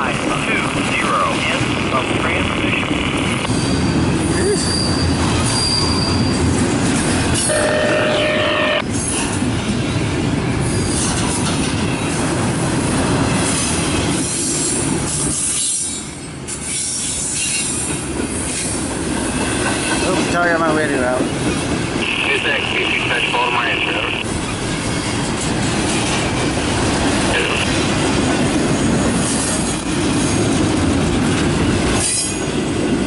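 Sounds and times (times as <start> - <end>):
train wheels rumbling on rails: 0.0 - 33.0
high wheel squeals: 3.5 - 6.5.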